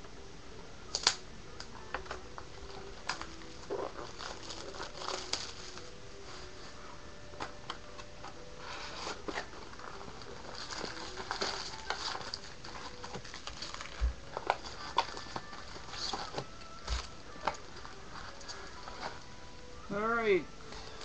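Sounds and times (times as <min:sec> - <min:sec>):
wrapper crinkling: 0:00.9 - 0:19.4
cardboard rustling and clicks: 0:07.3 - 0:19.2.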